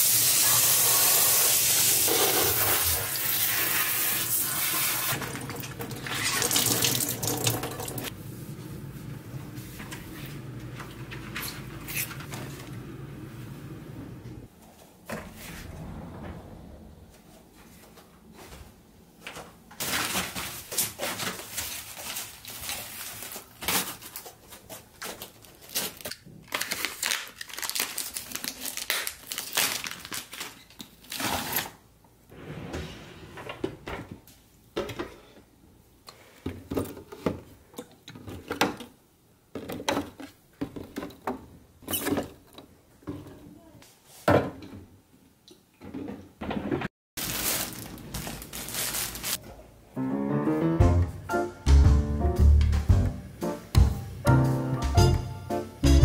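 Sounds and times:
plastic wrap crinkling and tearing: 0:19.8 - 0:31.6, 0:47.2 - 0:49.4.

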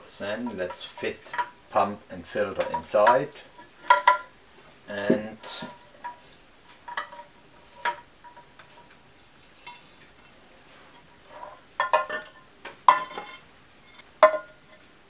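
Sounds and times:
parts knocking on ceramic bowl: 0:12.9 - 0:13.4, 0:14.2 - 0:14.6.

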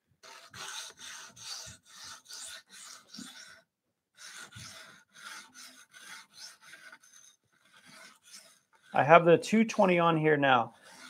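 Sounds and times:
sharpening stone scraping blade: 0:00.2 - 0:03.6, 0:04.2 - 0:09.0, 0:10.8 - 0:11.0.

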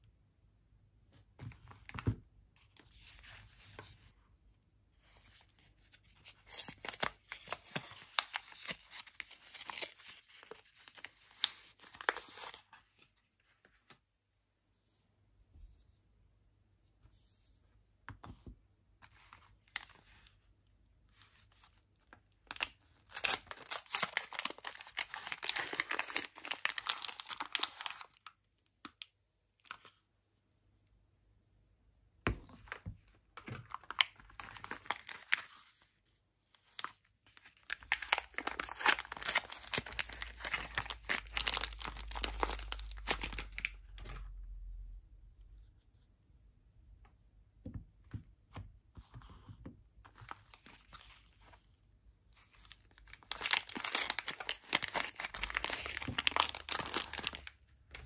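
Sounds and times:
soap wrappers rustling: 0:05.9 - 0:13.1, 0:21.4 - 0:28.4, 0:33.4 - 0:35.8, 0:36.6 - 0:44.1, 0:50.1 - 0:58.0.

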